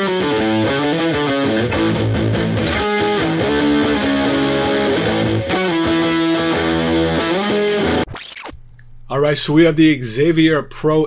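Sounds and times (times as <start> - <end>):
electric guitar strumming chords: 0.0 - 8.1.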